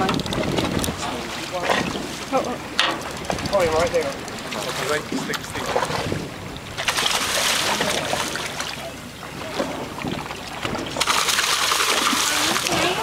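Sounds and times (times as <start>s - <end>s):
wind on microphone: 0.0s - 2.3s, 5.1s - 8.6s
sea water washing along hull: 0.0s - 13.0s.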